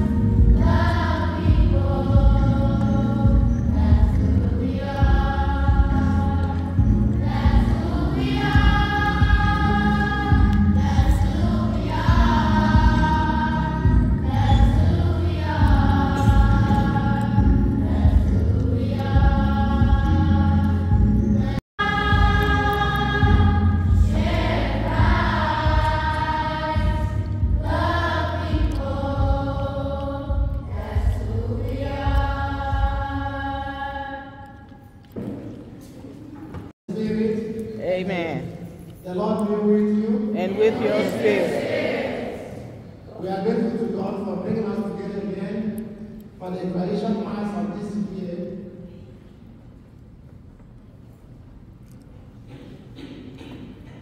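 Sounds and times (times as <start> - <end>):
deep bass: 0.0 - 33.1
choir singing a slow hymn: 0.0 - 36.2, 39.8 - 47.7.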